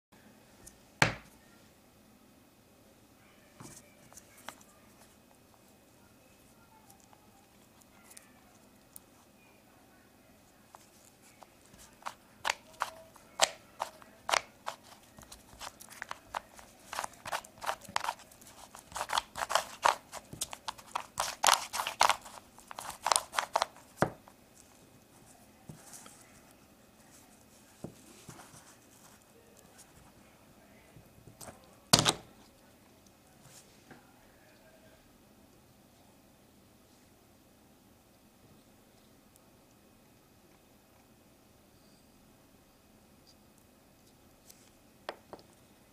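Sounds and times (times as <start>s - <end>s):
puzzle cube clicking: 12.0s - 23.9s.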